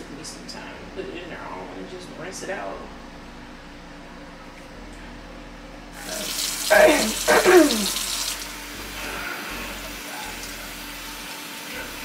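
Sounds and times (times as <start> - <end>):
faucet water splashing in sink: 6.0 - 8.5.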